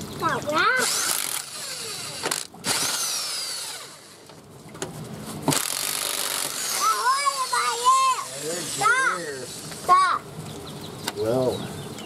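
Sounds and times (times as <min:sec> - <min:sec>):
power tool whining: 0:00.7 - 0:04.3, 0:05.4 - 0:09.9.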